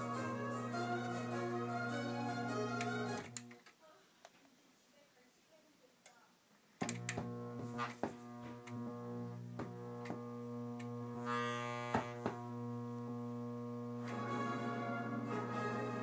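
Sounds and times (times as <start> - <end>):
loud buzzy mains hum: 7.0 - 16.0.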